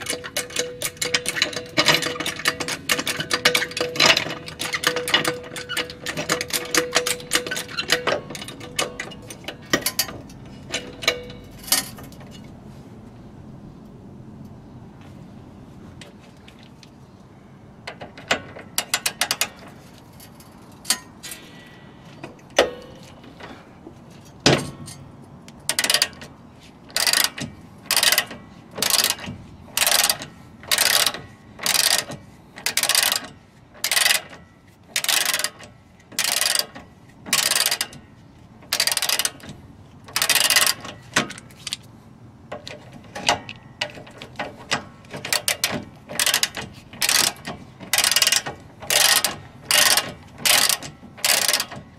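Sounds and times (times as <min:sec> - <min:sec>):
socket ratchet pawl clicking: 0:26.9 - 0:38.0, 0:38.7 - 0:39.5, 0:40.1 - 0:41.8, 0:45.2 - 0:51.8.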